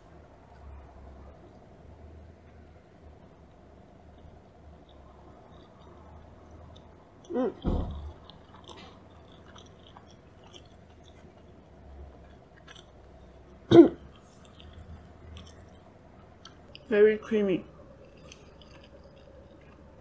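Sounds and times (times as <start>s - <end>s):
wet mouth chewing clicks: 4.1s - 16.9s, 18.0s - 20.0s.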